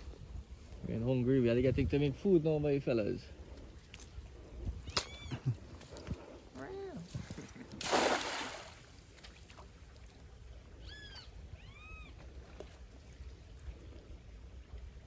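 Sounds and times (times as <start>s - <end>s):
net splashing into water: 7.7s - 9.7s
animal high calls: 10.8s - 12.2s.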